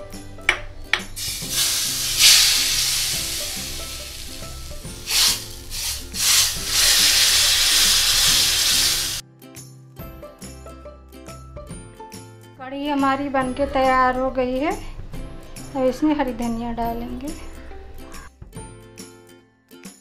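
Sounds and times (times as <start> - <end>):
hot oil sizzling in a pot: 1.2 - 9.2.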